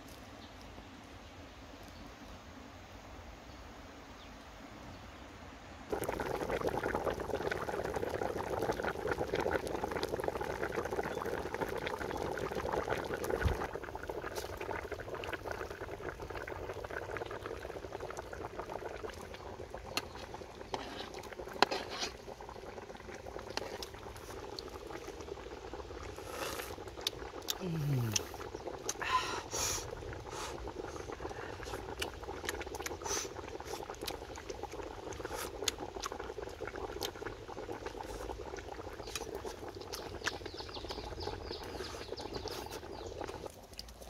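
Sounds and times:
stew boiling hard: 5.9s - 44.0s.

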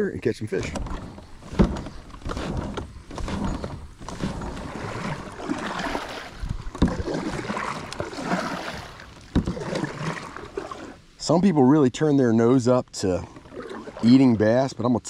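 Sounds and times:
paddle swishing and splashing: 0.5s - 11.3s, 13.1s - 14.6s
sharp knocks on boat: 0.6s - 10.3s.

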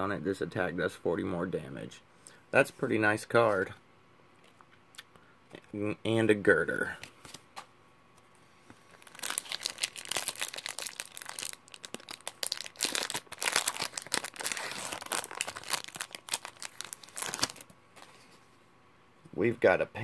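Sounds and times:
foil wrapper crinkling and tearing: 8.9s - 17.7s.

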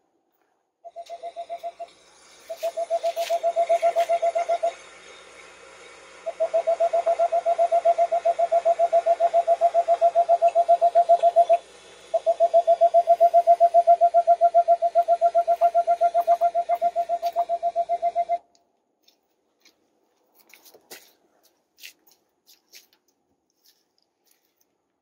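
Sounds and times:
owl hooting: 0.8s - 18.4s.

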